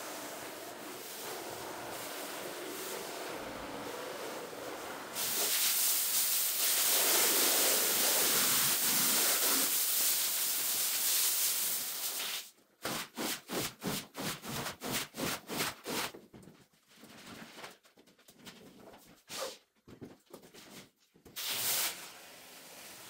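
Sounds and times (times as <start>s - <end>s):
spray hissing: 5.2s - 12.4s.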